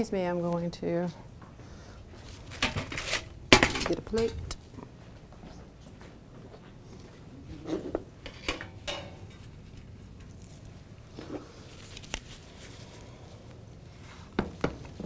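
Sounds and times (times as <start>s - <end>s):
metal tray set down: 2.6s - 4.4s
utensils clinking: 8.3s - 9.5s.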